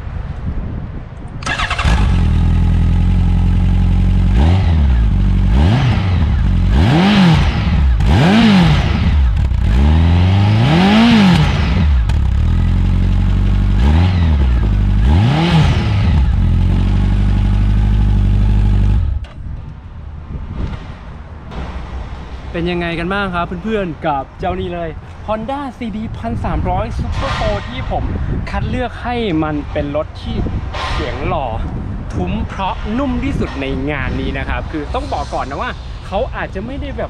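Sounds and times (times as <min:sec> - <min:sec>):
motorcycle engine revving: 0:01.4 - 0:19.3.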